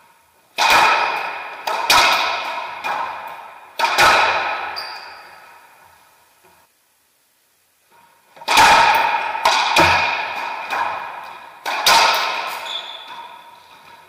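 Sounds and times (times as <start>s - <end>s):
racquets hitting ball: 0.5s - 6.1s, 8.3s - 14.0s
ball striking court walls: 0.6s - 6.0s, 8.4s - 14.0s.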